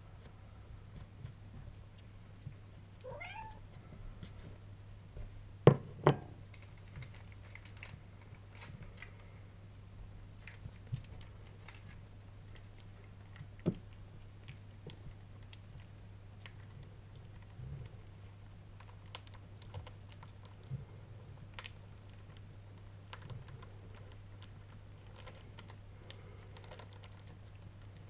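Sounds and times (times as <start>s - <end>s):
steady low hum: 0.0s - 28.0s
cat meowing: 3.0s - 3.6s.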